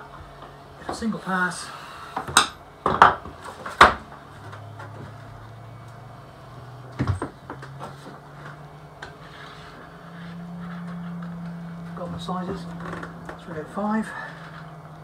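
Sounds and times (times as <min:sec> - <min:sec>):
knocks and clatters on workbench: 0:02.2 - 0:04.0, 0:07.0 - 0:08.0.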